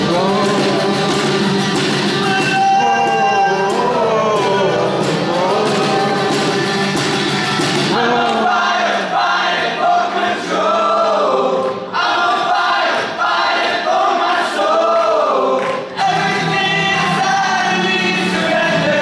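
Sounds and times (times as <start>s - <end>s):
instrumental backing: 0.0s - 8.8s
men singing in harmony: 0.0s - 12.7s, 13.8s - 19.0s.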